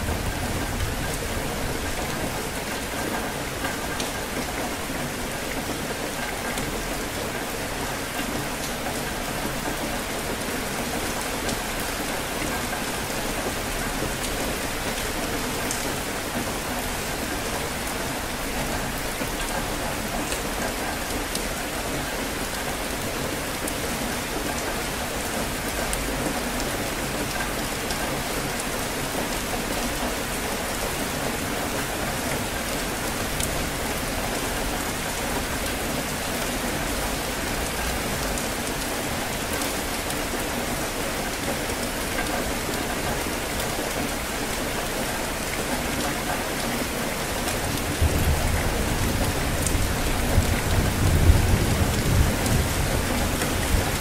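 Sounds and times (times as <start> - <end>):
low rumble of thunder: 0.0 - 2.6, 47.8 - 54.0
steady rain on hard surfaces: 0.0 - 54.0.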